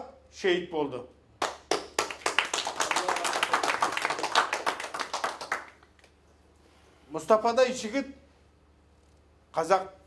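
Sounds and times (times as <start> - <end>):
audience applauding: 1.4 - 5.9.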